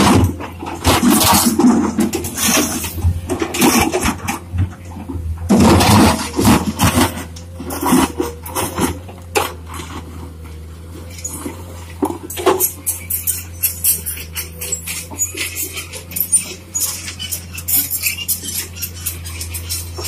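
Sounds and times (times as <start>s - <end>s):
pavement chunks clattering: 0.0s - 10.6s
bucket scraping asphalt: 0.0s - 20.0s
diesel engine running: 0.0s - 20.0s.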